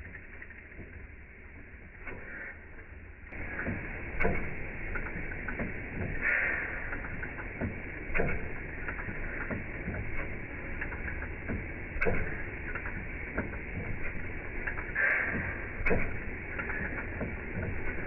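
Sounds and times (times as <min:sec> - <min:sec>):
stationary engine clattering: 0:03.3 - 0:18.0.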